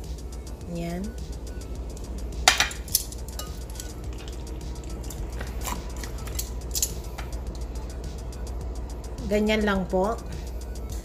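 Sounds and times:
metal tongs clinking on glass bowl: 0:02.5 - 0:04.4.

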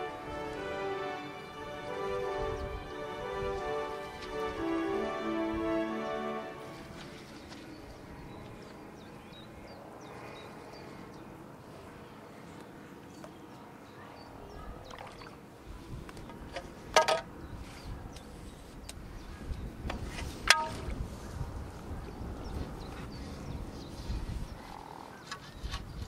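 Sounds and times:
wind rumble on microphone: 0:02.1 - 0:03.8, 0:14.5 - 0:26.0.

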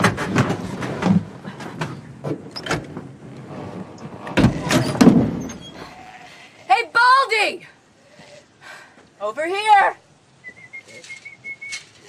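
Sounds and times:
heavy thump: 0:04.2 - 0:05.6.

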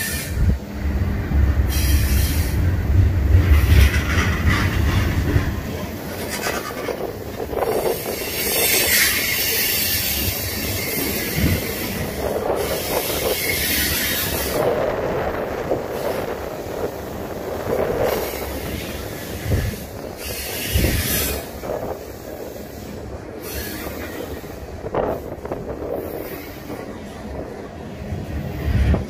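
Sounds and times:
train wheels rumbling on track: 0:00.0 - 0:29.0
hiss: 0:18.0 - 0:25.3.

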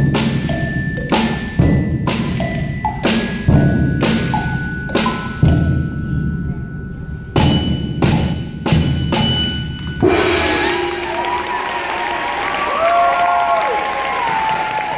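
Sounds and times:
bell kit tones ringing: 0:00.0 - 0:12.7
applause and cheering: 0:10.4 - 0:14.9.

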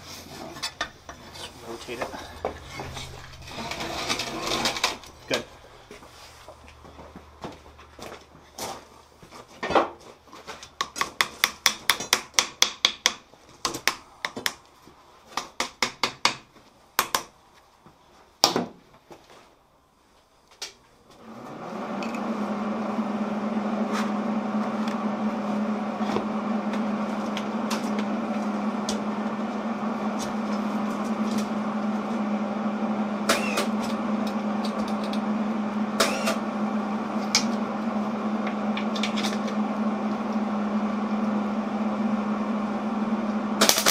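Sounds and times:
machine hum with low buzz: 0:00.0 - 0:08.1, 0:21.2 - 0:43.9.

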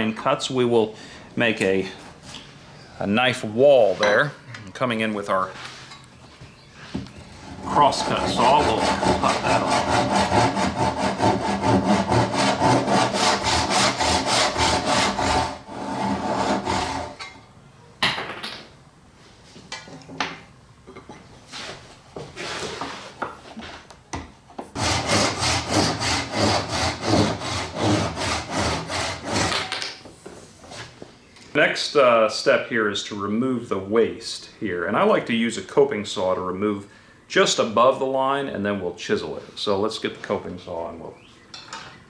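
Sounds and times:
hand saw cutting wood: 0:07.4 - 0:17.2, 0:24.8 - 0:29.8.

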